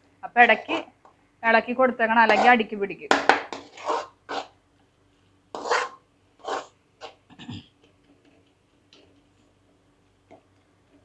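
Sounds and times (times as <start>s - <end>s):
spatula scraping metal pan: 2.2s - 2.6s, 3.5s - 4.6s, 5.5s - 7.2s.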